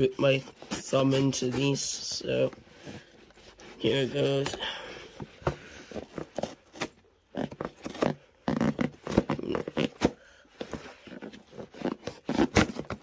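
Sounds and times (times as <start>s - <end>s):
knife slitting cardboard box: 7.7s - 13.0s.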